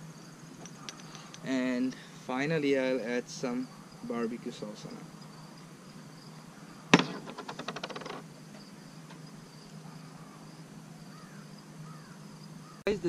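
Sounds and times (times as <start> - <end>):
insects chirring: 0.0 - 13.0
rattling run of ticks: 6.9 - 9.8.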